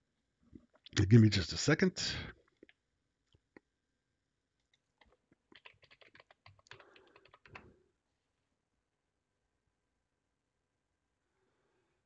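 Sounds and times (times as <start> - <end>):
typing on computer keyboard: 4.6 - 7.7.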